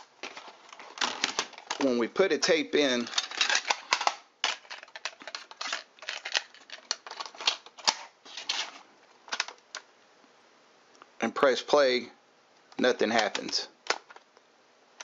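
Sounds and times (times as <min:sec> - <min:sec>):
cassette tape plastic clicking: 0:03.0 - 0:08.1, 0:09.3 - 0:09.9, 0:12.6 - 0:14.4.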